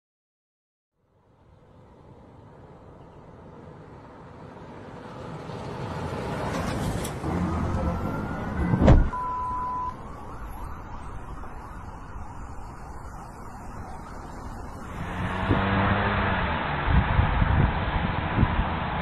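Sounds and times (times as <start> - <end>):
car engine and road noise: 1.0 - 19.0
loud thump: 8.7 - 9.2
short high beep: 9.2 - 10.0.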